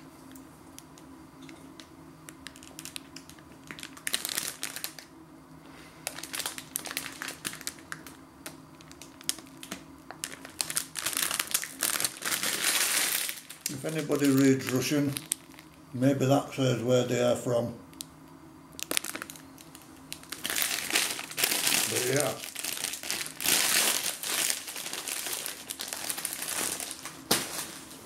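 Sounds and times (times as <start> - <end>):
plastic packet crinkling: 2.4 - 5.1, 6.0 - 15.8, 18.8 - 28.0.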